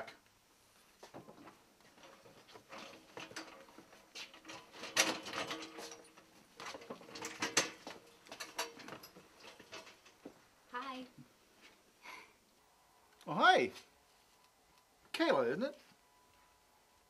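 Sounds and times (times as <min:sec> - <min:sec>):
metal hand truck rattling: 0:01.9 - 0:10.2.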